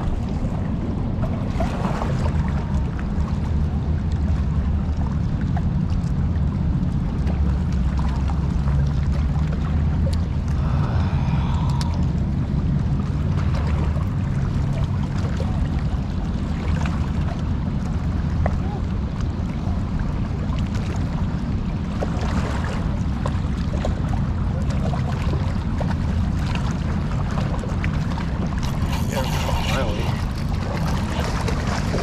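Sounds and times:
turbulent river water rushing: 0:08.5 - 0:15.4, 0:24.4 - 0:32.0.

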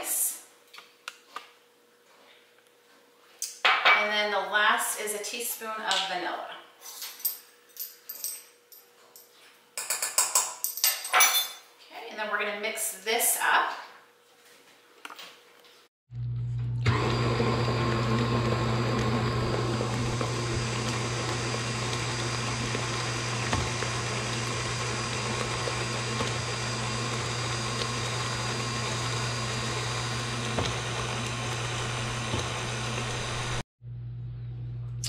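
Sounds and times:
stand mixer beating batter: 0:16.4 - 0:33.6.

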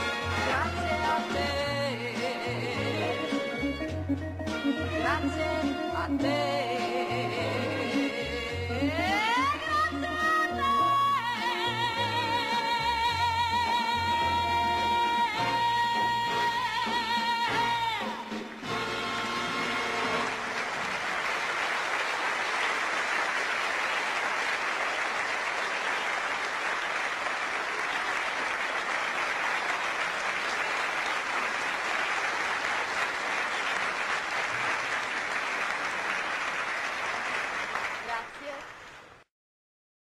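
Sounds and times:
audience applauding: 0:18.4 - 0:39.2.

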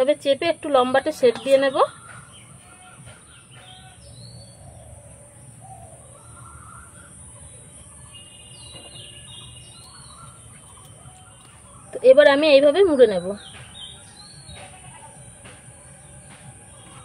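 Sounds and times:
low steady background noise: 0:00.0 - 0:17.0
faint bird chirps: 0:00.8 - 0:15.3.

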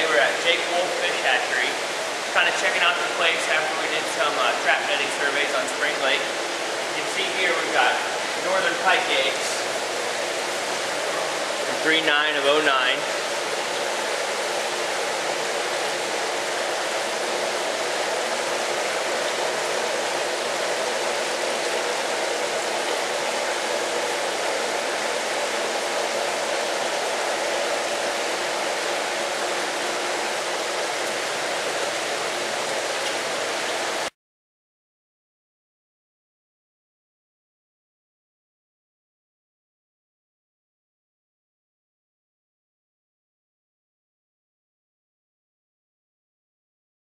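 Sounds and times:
running water rushing: 0:00.0 - 0:34.2.

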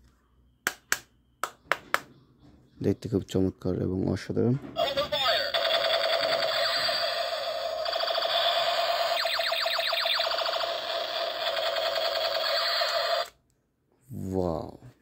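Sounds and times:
toy gun electronic firing sound: 0:04.9 - 0:13.3.

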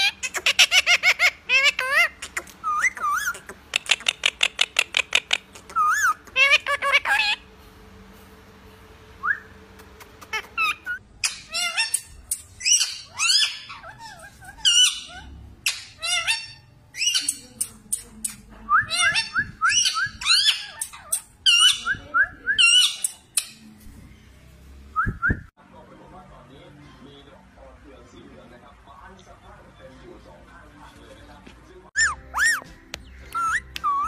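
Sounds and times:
parakeets squawking and chattering: 0:00.0 - 0:07.6, 0:09.4 - 0:24.4, 0:32.0 - 0:34.0.

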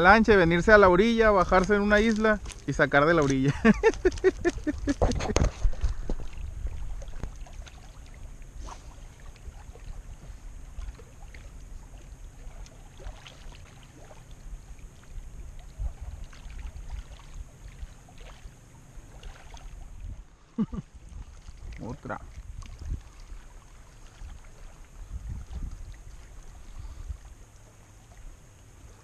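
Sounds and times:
wind rumble on microphone: 0:00.0 - 0:13.1, 0:13.9 - 0:18.2, 0:19.7 - 0:27.4
waves lapping on rocks: 0:00.0 - 0:20.1.

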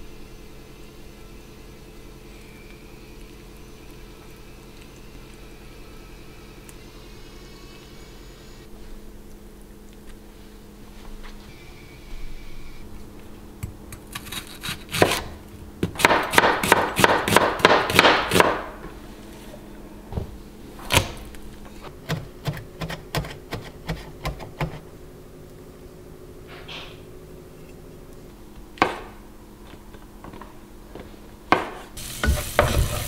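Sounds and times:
knife chopping on wooden board: 0:14.2 - 0:18.6, 0:28.8 - 0:29.1, 0:31.5 - 0:33.0.

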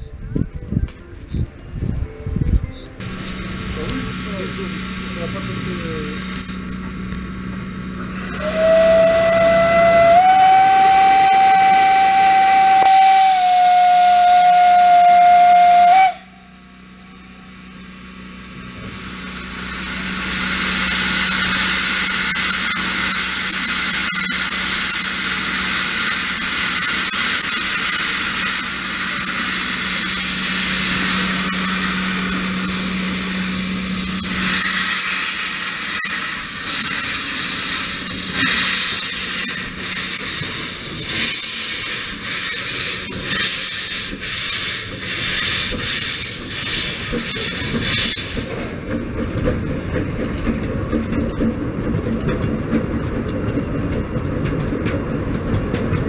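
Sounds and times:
steam venting hiss: 0:08.2 - 0:16.2, 0:18.9 - 0:48.6
steam locomotive whistle: 0:08.2 - 0:16.9.

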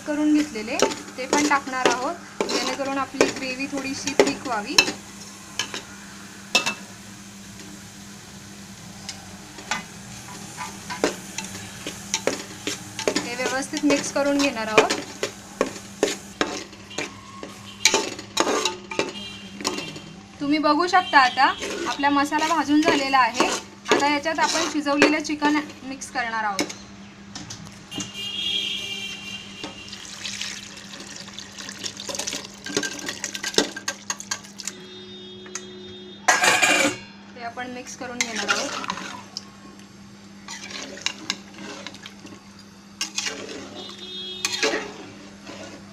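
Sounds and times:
paste sizzling: 0:00.0 - 0:20.0, 0:21.2 - 0:25.4, 0:29.8 - 0:34.7
metal pots and spoon clinking: 0:00.4 - 0:05.0, 0:10.6 - 0:20.1, 0:31.0 - 0:34.8, 0:36.3 - 0:37.1, 0:38.2 - 0:39.2, 0:43.0 - 0:45.0
spatula scraping paste in pot: 0:21.5 - 0:24.8
liquid pouring into pot: 0:29.9 - 0:34.8.

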